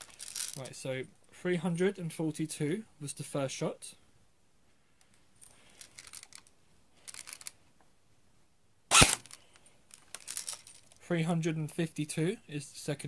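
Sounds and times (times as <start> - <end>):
airsoft gun shot: 8.9 - 9.2.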